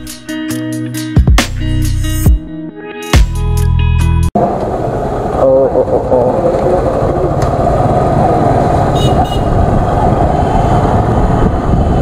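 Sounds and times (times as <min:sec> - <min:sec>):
road and wind noise: 0:04.4 - 0:12.0
high horn toots: 0:09.0 - 0:09.6.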